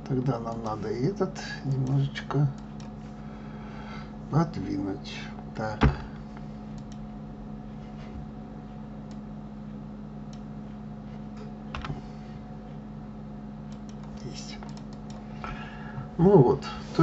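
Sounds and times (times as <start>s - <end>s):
low hum: 0.0s - 17.0s
keyboard and mouse clicks: 6.7s - 7.0s, 13.7s - 15.2s.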